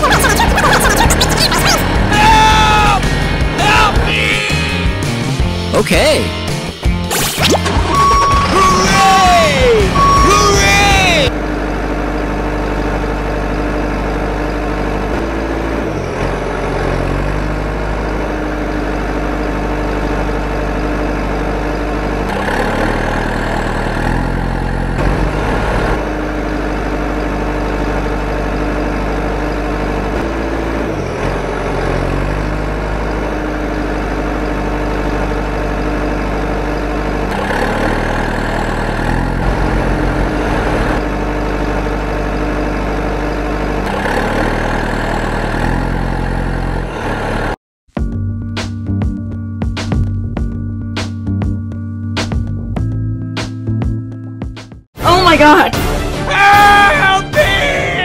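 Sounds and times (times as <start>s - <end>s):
truck engine idling: 7.6s - 47.6s.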